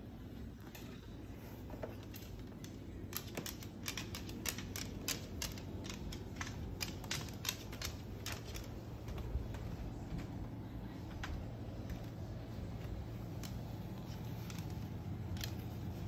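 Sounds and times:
bird claws clicking on wooden floor: 1.8 - 9.7.

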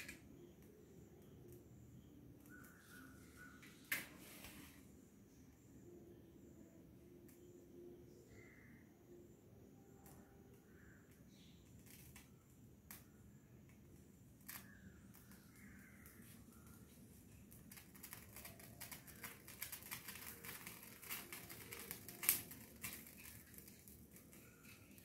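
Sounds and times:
small flames crackling: 10.0 - 25.0
flame snap: 18.5 - 24.8.

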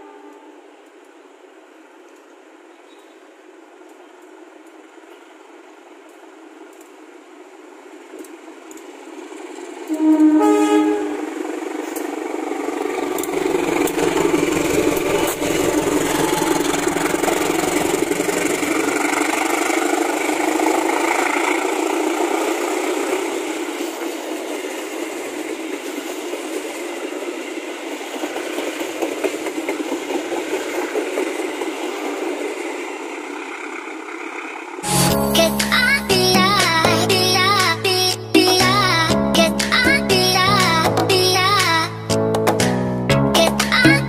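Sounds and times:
locomotive horn blast: 0.0 - 0.6, 9.9 - 11.4
train wheels on rails: 0.0 - 36.8
locomotive engine under load: 8.6 - 37.6.

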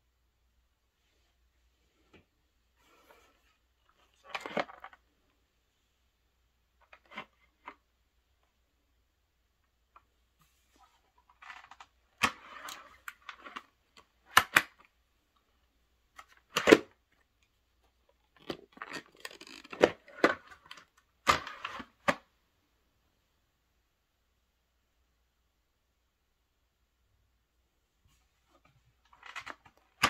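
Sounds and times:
plastic helmet clicks and clacks: 11.4 - 14.9, 18.1 - 22.3.

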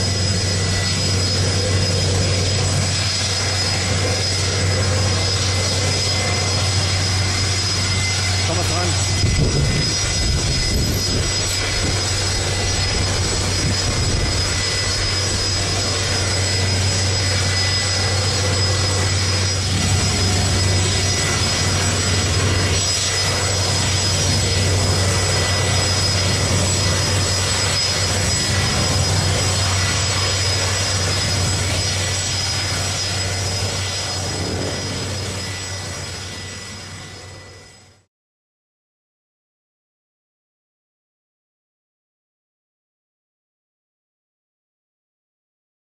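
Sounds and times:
jet engines roaring: 0.0 - 38.1.

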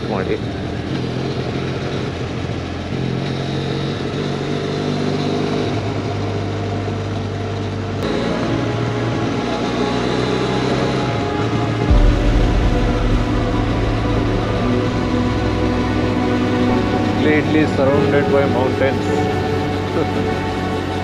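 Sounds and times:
motorcycle engine running: 0.0 - 21.0
wind rush: 11.9 - 17.2.

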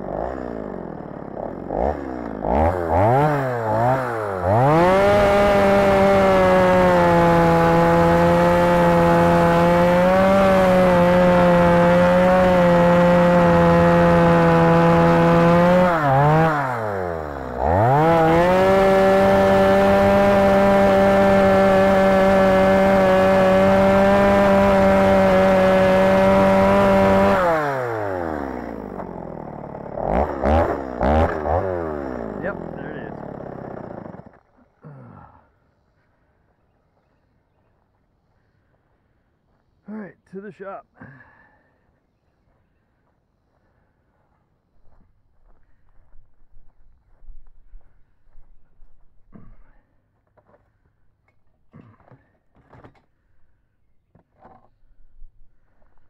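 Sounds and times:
chainsaw cutting at full throttle: 0.0 - 35.0.

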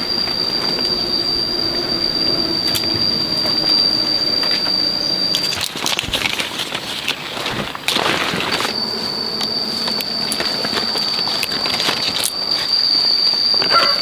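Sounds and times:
cicada whine: 0.0 - 14.0
clicks and rustles: 4.4 - 13.8.

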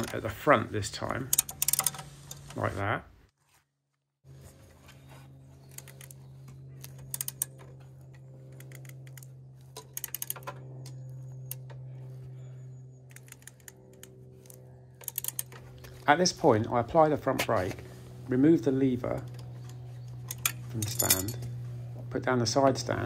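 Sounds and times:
ratchet clicking: 1.3 - 2.5, 7.0 - 7.6, 8.5 - 10.5, 13.1 - 15.6
steady low hum: 4.2 - 23.0.

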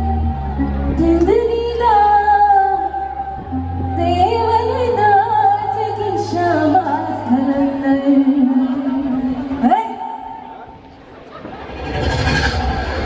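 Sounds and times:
woman singing with vibrato: 0.0 - 10.2.

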